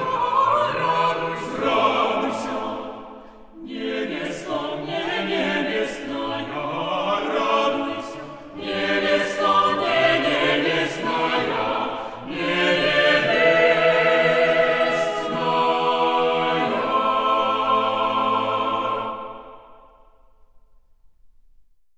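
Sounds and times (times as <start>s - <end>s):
choir singing: 0.0s - 20.5s
singers breathing: 3.0s - 3.6s, 11.9s - 12.3s.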